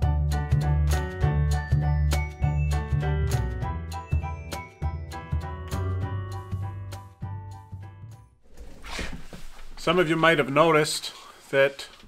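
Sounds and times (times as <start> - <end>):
background music with beats: 0.0 - 8.2.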